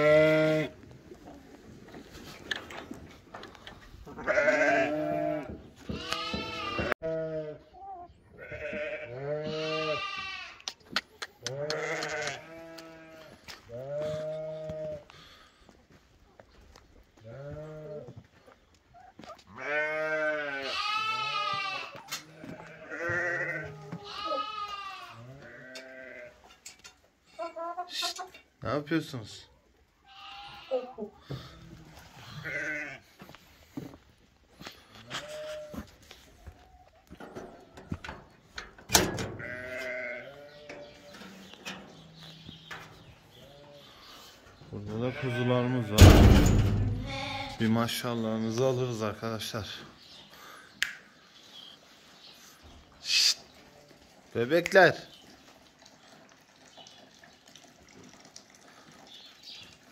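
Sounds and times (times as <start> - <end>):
sheep bleating: 0.0 - 0.8, 4.1 - 7.7, 8.4 - 10.7, 11.5 - 15.1, 19.5 - 26.4, 30.0 - 31.0, 32.3 - 33.0, 39.4 - 41.2, 44.8 - 46.1, 46.8 - 47.7.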